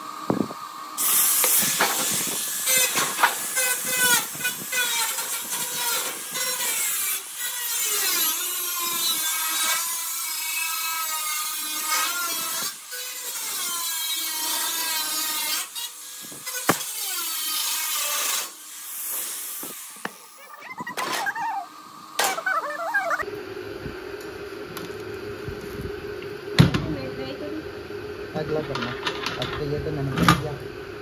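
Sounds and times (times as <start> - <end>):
angle grinder cutting steel: 1.0 - 23.3.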